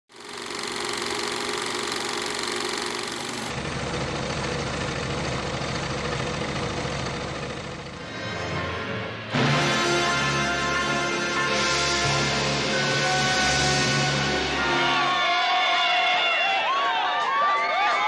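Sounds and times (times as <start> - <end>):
film projector clatter and whir: 0.1 - 3.6.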